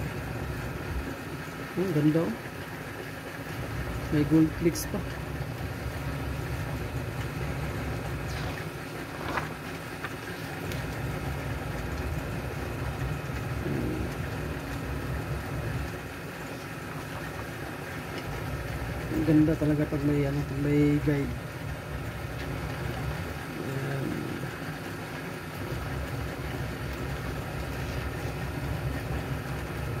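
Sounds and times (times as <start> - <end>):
low background hum: 0.0 - 30.0
book pages turning: 8.4 - 10.5.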